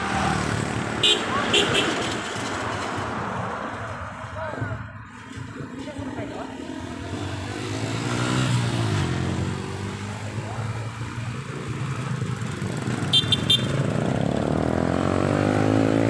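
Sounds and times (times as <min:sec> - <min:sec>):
motorcycles passing: 0:00.0 - 0:16.0
horn short beeps: 0:13.1 - 0:13.8.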